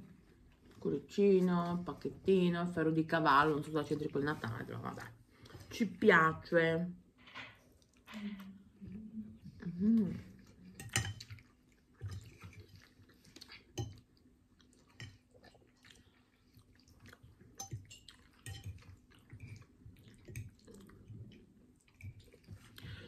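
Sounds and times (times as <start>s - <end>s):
person chewing: 10.3s - 23.0s.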